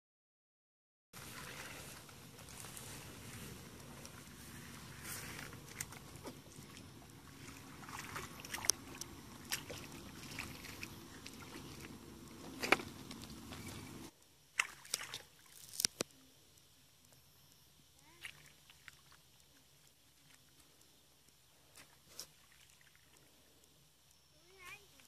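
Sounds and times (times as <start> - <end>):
outdoor background noise: 1.2 - 25.0
stick splashing in muddy water: 5.2 - 13.3, 14.5 - 16.0.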